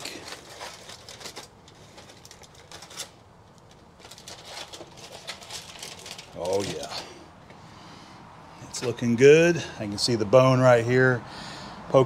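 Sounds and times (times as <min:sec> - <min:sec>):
aluminium foil crinkling: 0:00.0 - 0:07.1.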